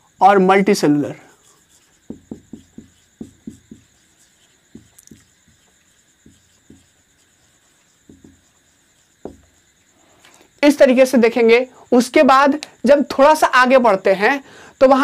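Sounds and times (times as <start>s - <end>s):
marker writing on whiteboard: 1.3s - 9.8s.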